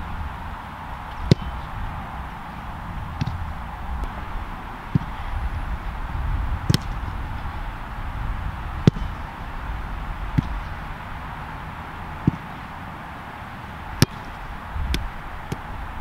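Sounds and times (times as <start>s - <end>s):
low steady rumble: 0.0s - 16.0s
boot kicking ball thuds: 1.1s - 1.6s, 3.2s - 4.2s, 6.6s - 7.2s, 8.8s - 9.2s, 14.0s - 15.7s.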